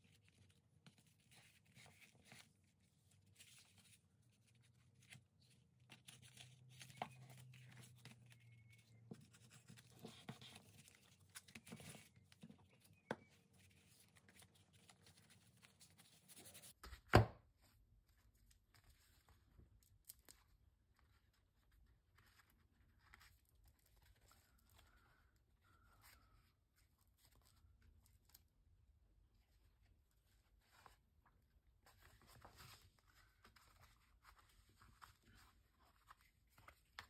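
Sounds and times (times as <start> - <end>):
paper rustling: 0.0 - 17.0, 31.7 - 37.0.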